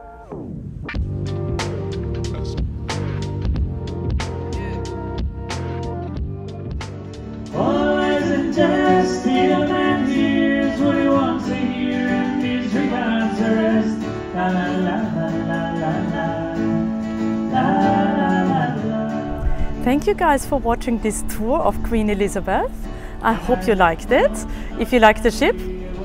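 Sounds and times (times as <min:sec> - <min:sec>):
acoustic guitar: 0:00.0 - 0:26.0
man and woman singing: 0:07.5 - 0:19.9, 0:23.0 - 0:26.0.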